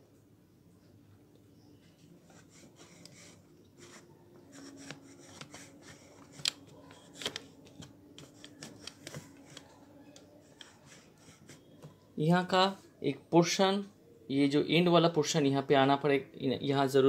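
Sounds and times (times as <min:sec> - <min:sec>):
plastic parts rubbing and scraping: 0:02.3 - 0:11.9.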